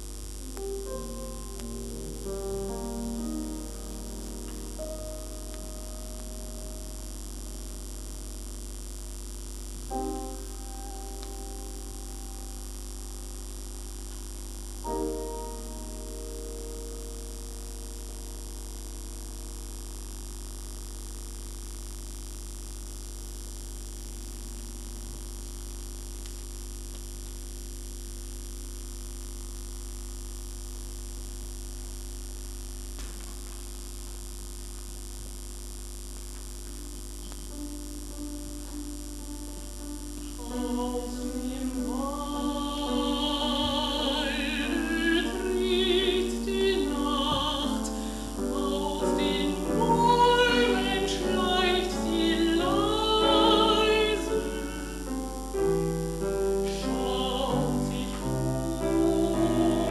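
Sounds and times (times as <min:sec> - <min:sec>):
soft piano notes: 0:00.0 - 0:08.8, 0:09.8 - 0:12.6, 0:14.9 - 0:19.5, 0:36.4 - 0:59.9
grand piano chord ringing: 0:00.0 - 0:08.9, 0:09.8 - 0:12.7, 0:36.6 - 0:59.9
mains hum and hiss: 0:00.0 - 0:59.9.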